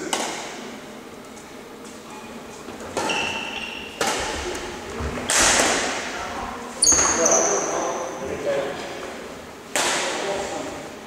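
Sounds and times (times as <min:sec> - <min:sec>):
racket hitting shuttlecock: 0:00.0 - 0:00.5, 0:02.8 - 0:04.6, 0:05.2 - 0:06.1, 0:09.7 - 0:10.2
high shoe squeak: 0:03.0 - 0:04.0, 0:06.8 - 0:08.2.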